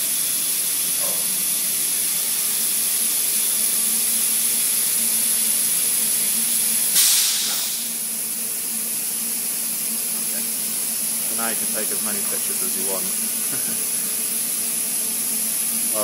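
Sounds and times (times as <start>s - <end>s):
compressed air hissing: 0.0s - 8.4s, 10.3s - 16.0s
air burst: 6.9s - 8.0s.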